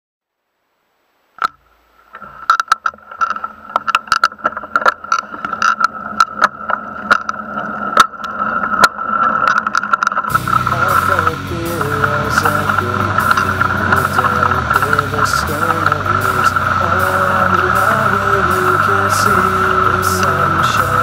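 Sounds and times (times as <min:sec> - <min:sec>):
bike rattling over bumps: 0:02.2 - 0:21.0
high-pitched hum: 0:03.4 - 0:21.0.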